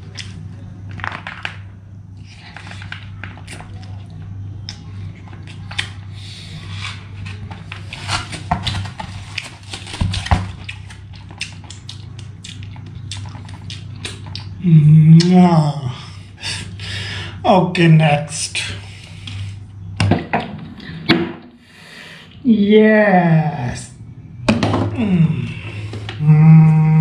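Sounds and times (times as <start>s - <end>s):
steady low hum: 0.0s - 27.0s
wet chewing and mouth smacks: 10.6s - 14.6s.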